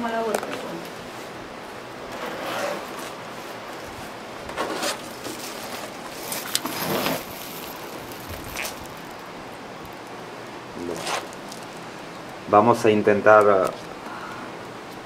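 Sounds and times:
steady hiss: 0.0 - 15.0
rustling and scraping: 0.3 - 10.1, 10.8 - 12.3.

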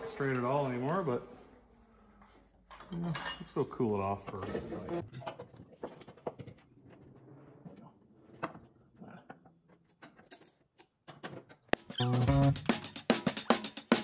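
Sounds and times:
loud music with a beat: 11.8 - 14.0.

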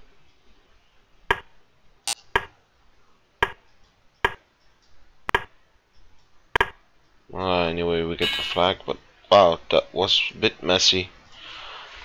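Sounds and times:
sharp clicks: 3.4 - 6.8.

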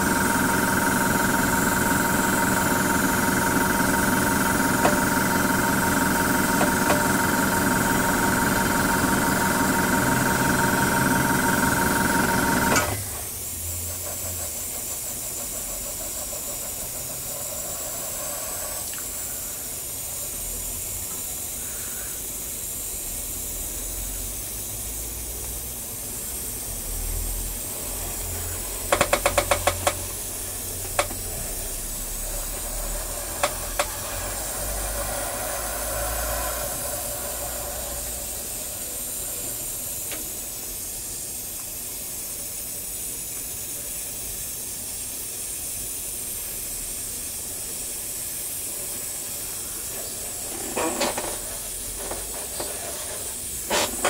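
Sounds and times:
airbrush hissing: 14.9 - 54.0.

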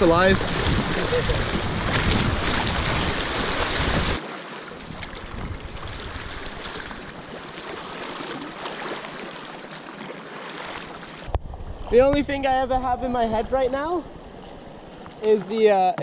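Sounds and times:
wind on microphone: 0.0 - 4.2, 4.8 - 7.4, 11.2 - 15.2
paddle splashes: 0.0 - 12.6
water rushing around kayak: 0.0 - 15.4.

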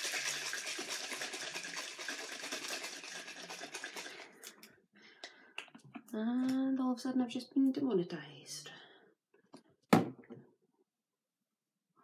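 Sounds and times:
bottle of liquid being shaken: 0.0 - 4.7.

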